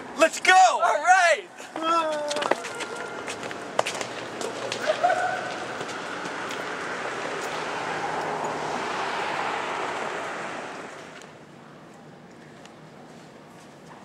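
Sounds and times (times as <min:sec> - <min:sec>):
steady rushing noise: 0:03.2 - 0:11.4.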